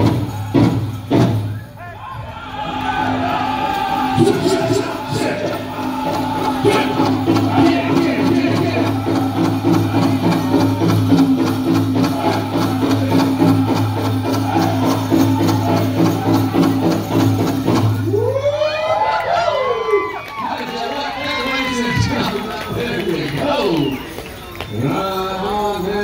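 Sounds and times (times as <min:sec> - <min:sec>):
men singing high-pitched: 0:02.5 - 0:17.3, 0:24.7 - 0:26.0
big hand drum beat: 0:04.2 - 0:18.2
jingling rattle: 0:23.7 - 0:26.0.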